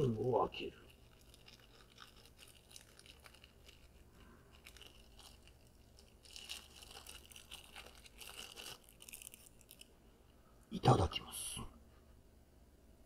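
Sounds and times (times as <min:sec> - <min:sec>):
plastic wrapper crinkling: 0:00.0 - 0:10.0.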